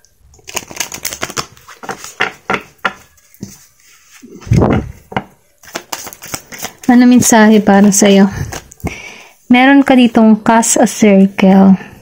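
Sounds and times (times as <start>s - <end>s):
cards shuffling: 0.4s - 9.0s.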